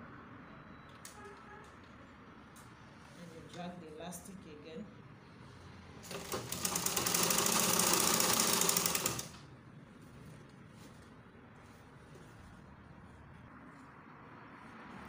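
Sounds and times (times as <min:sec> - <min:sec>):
sewing machine stitching: 0:06.0 - 0:09.4.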